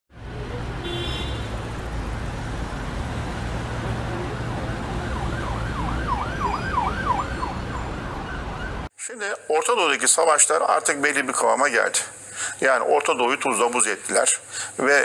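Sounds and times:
city traffic rumble: 0.1s - 8.9s
emergency siren yelping: 3.8s - 8.9s.

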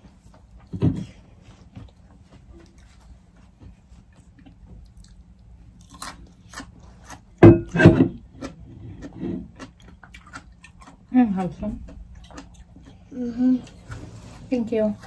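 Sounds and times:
mouth eating noises: 8.1s - 14.2s.

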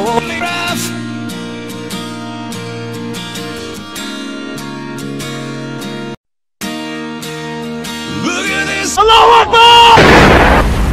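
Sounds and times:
person singing: 0.0s - 1.1s, 8.0s - 9.5s
strummed acoustic guitar: 0.0s - 8.9s.

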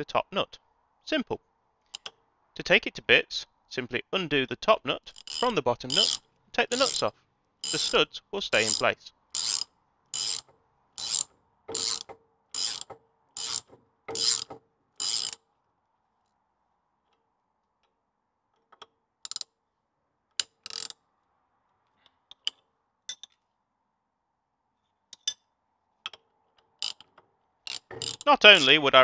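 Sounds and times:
socket ratchet clicking: 1.9s - 2.2s, 5.1s - 15.4s, 18.6s - 19.6s, 20.3s - 21.0s, 26.1s - 28.8s.

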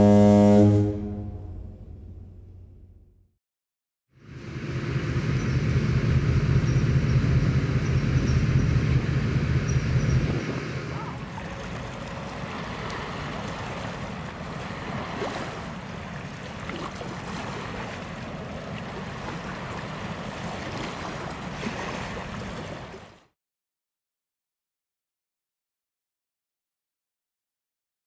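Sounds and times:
low shipboard rumble: 0.0s - 3.3s, 4.2s - 23.2s
wind buffeting microphone: 5.3s - 16.3s
sea water washing: 10.4s - 23.3s.

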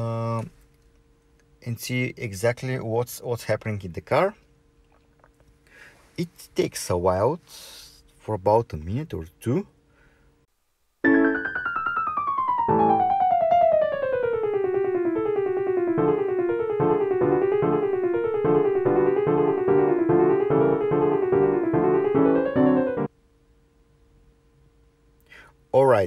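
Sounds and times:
piano keyboard music: 11.0s - 23.1s.

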